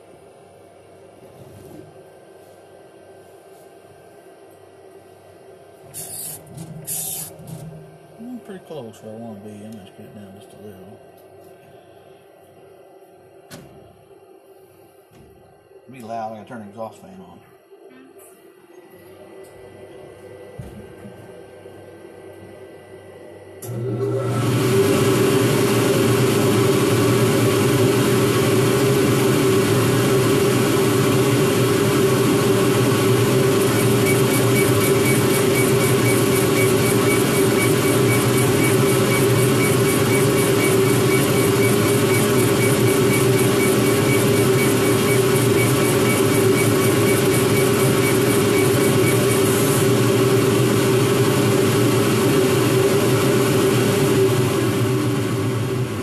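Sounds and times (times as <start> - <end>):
exhaust fan humming: 0.0 - 17.4, 18.9 - 56.0
laser head ticking: 33.8 - 49.4.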